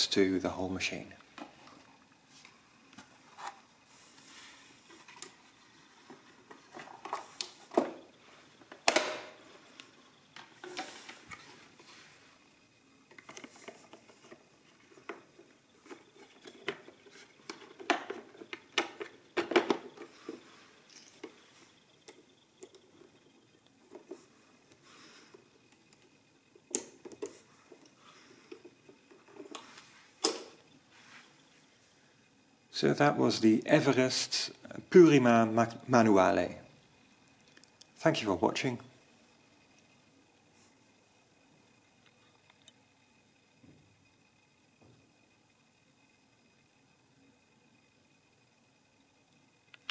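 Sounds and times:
machine casing clicks and knocks: 0:08.7 - 0:09.3.

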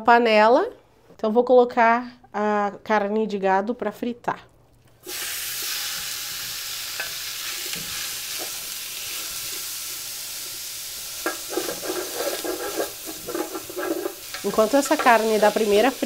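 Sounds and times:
beef sizzling in a pot: 0:05.0 - 0:16.0
wooden spoon scraping a pot: 0:11.2 - 0:15.4.

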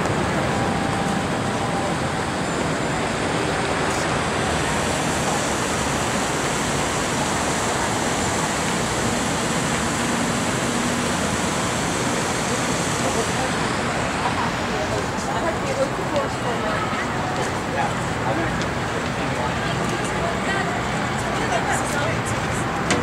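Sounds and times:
road traffic roar: 0:00.0 - 0:23.0.

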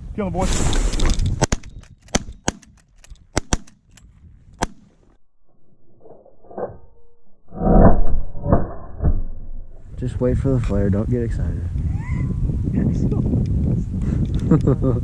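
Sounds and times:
shotguns firing: 0:01.4 - 0:03.8.

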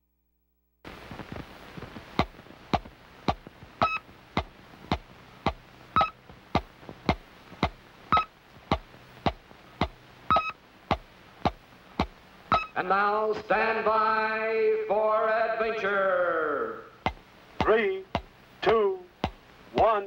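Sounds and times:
steady hiss: 0:00.9 - 0:20.0
sharp electronic clicks: 0:02.2 - 0:04.1, 0:05.5 - 0:06.2, 0:07.1 - 0:08.3, 0:09.3 - 0:10.6, 0:11.4 - 0:12.8
short high beep: 0:10.3 - 0:10.6, 0:12.5 - 0:12.8.

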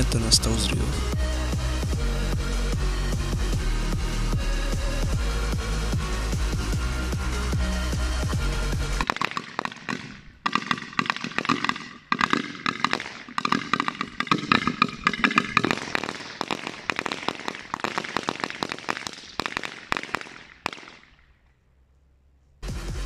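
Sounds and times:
firecrackers banging: 0:09.0 - 0:21.1.

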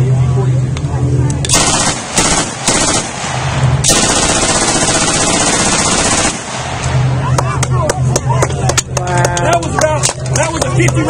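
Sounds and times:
machine gun firing bursts: 0:01.5 - 0:07.0.

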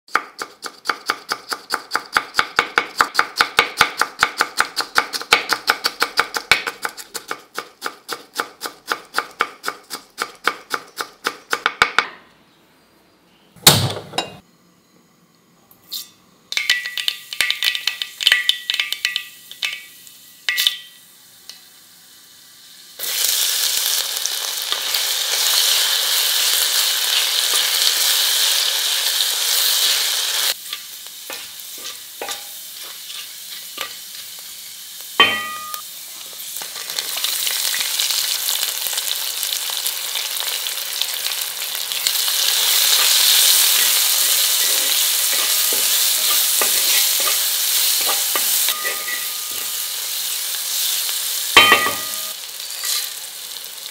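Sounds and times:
ginger sizzling in hot oil: 0:16.5 - 0:53.9
spatula stirring: 0:30.6 - 0:34.0
metallic pan clinks: 0:35.2 - 0:35.8, 0:48.0 - 0:49.8, 0:51.6 - 0:53.0.

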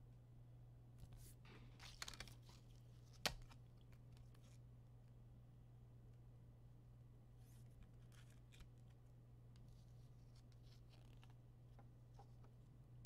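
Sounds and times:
cards and wrappers rustling: 0:01.5 - 0:04.6.

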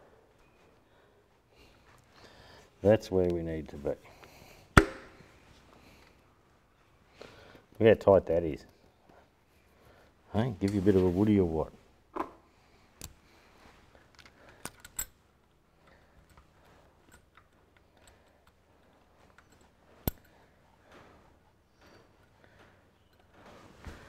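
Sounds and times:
metallic clicks of small parts: 0:14.0 - 0:20.5.

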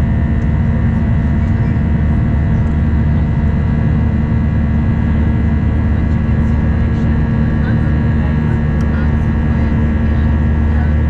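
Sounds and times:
jet engine deep rumble: 0:00.0 - 0:11.0
jet engine whine: 0:00.0 - 0:11.0.

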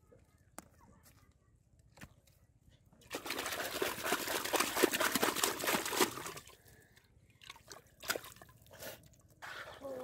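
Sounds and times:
fish splashing in shallow water: 0:03.1 - 0:06.7.

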